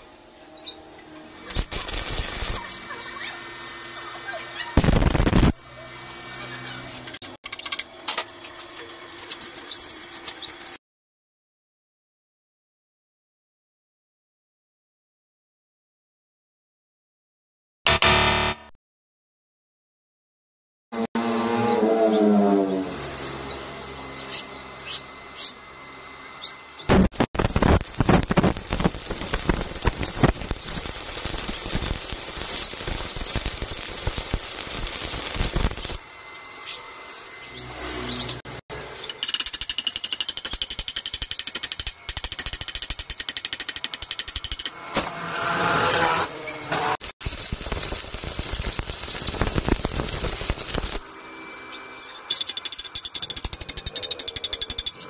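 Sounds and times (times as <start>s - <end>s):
stick welding arc crackling: 1.4s - 3.4s, 4.6s - 5.6s, 26.8s - 36.0s, 46.7s - 51.1s.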